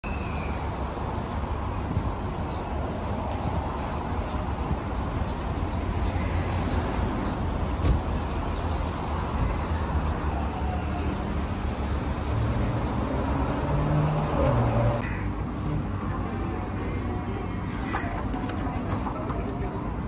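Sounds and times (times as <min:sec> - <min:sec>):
road traffic rumble: 0:00.0 - 0:20.0
passing engine: 0:10.3 - 0:15.0.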